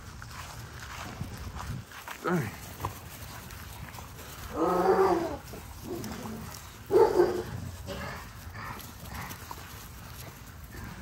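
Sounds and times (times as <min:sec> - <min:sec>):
puppies growling: 0:04.1 - 0:11.0.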